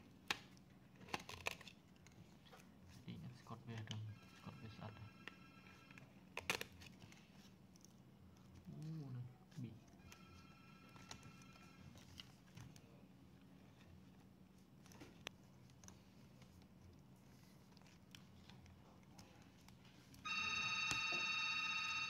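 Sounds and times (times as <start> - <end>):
warbling phone ringtone: 4.0 - 6.1, 10.0 - 12.0, 20.2 - 22.0.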